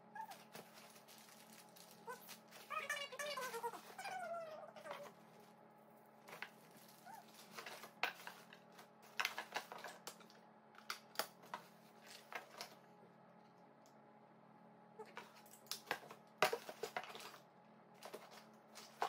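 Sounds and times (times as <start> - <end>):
plastic bags crinkling: 0.2 - 4.1, 6.2 - 10.3.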